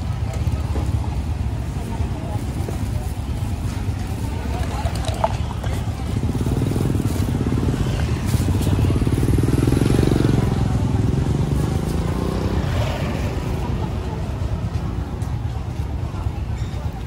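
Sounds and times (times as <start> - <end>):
small motorcycle engine putter: 4.4 - 8.6.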